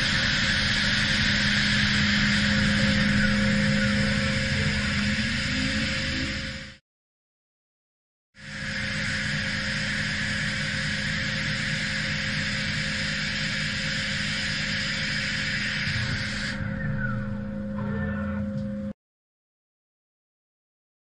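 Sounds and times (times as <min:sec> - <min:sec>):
falling machine whine: 0:00.0 - 0:06.8, 0:08.4 - 0:19.0
hiss of coolant and cutting: 0:00.0 - 0:06.8, 0:08.4 - 0:16.6
lathe machine hum: 0:00.0 - 0:06.8, 0:08.4 - 0:17.8.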